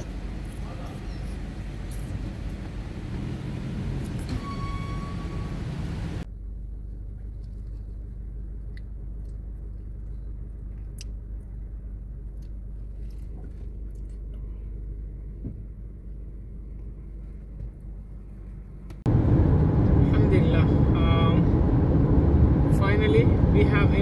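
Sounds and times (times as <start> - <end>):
loud driving noise: 0.0 - 6.3, 19.1 - 24.0
car cabin rumble: 15.1 - 24.0.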